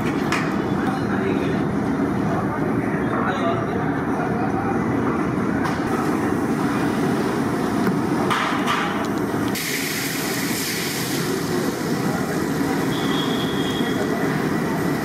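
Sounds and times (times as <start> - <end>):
gas burners roaring: 0.0 - 15.0.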